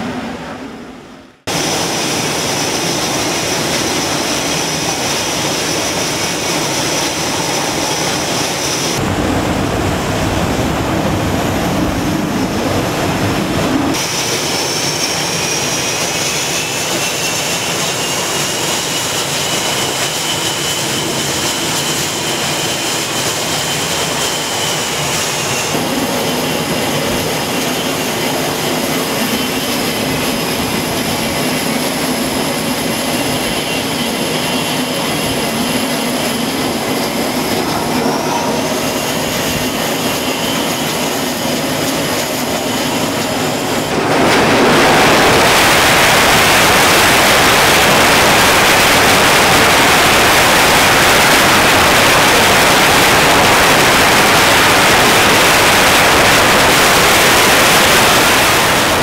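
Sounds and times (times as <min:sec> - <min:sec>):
jet engines roaring with turbine whine: 0:00.0 - 0:59.0.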